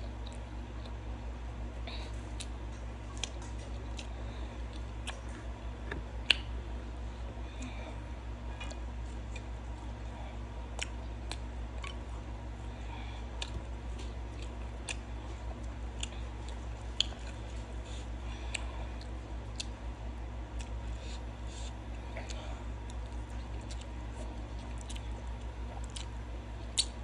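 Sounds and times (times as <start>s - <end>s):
chewing with wet mouth clicks: 0.0s - 1.0s, 2.3s - 5.5s, 6.2s - 6.5s, 8.6s - 9.6s, 10.7s - 12.2s, 13.2s - 19.8s, 20.5s - 27.0s
steady low hum: 0.0s - 27.0s.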